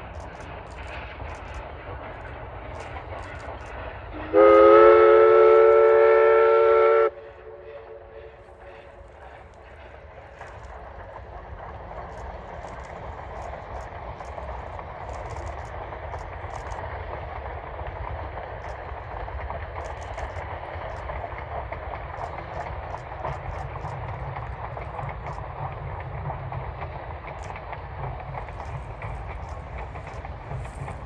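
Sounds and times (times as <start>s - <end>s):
steam train rumble: 0.0s - 31.0s.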